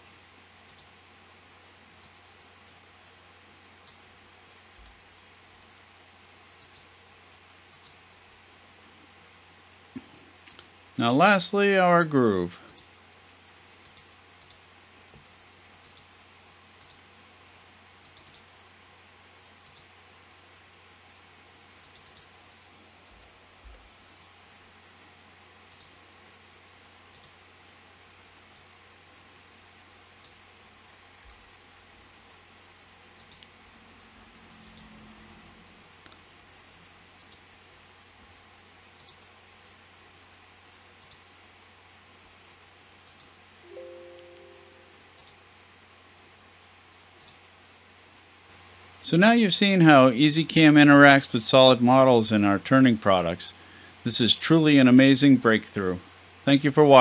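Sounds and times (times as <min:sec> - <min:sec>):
low steady hum: 0:00.0 - 0:57.0
computer mouse clicks: 0:00.6 - 0:00.9, 0:02.0 - 0:02.2, 0:03.8 - 0:04.0, 0:04.7 - 0:05.0, 0:06.6 - 0:06.9, 0:07.7 - 0:08.0, 0:13.8 - 0:14.6, 0:15.8 - 0:16.1, 0:16.8 - 0:17.0, 0:18.0 - 0:18.5, 0:19.6 - 0:19.9, 0:21.8 - 0:22.3, 0:25.7 - 0:26.0, 0:27.1 - 0:27.4, 0:28.5 - 0:28.7, 0:30.2 - 0:30.4, 0:31.2 - 0:31.4, 0:33.2 - 0:33.6, 0:34.6 - 0:34.9, 0:37.2 - 0:37.4, 0:39.0 - 0:39.2, 0:41.0 - 0:41.3, 0:43.0 - 0:43.3, 0:45.2 - 0:45.4, 0:47.2 - 0:47.4.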